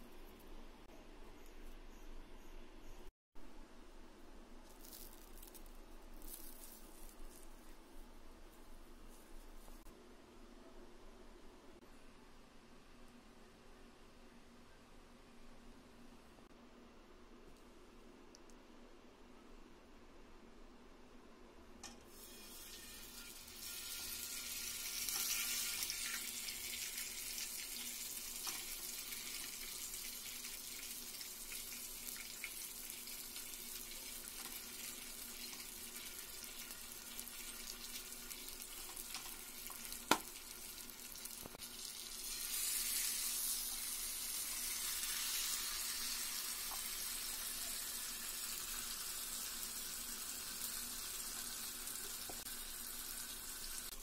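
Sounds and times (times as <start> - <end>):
chicken sizzling in oil: 22.1 - 54.0.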